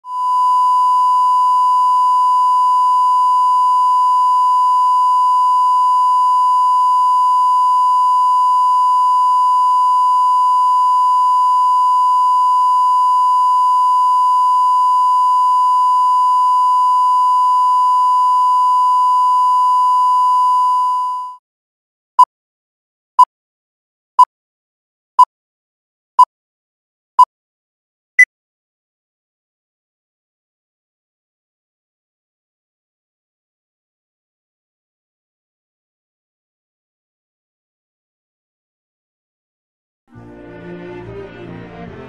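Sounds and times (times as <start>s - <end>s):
sine test tone: 0.1s - 21.4s.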